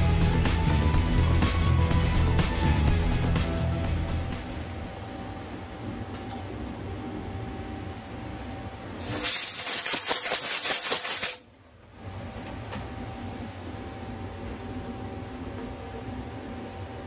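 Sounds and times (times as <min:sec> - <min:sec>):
low machine hum: 0:00.0 - 0:09.1, 0:11.5 - 0:17.0
compressed air hissing: 0:09.0 - 0:11.4.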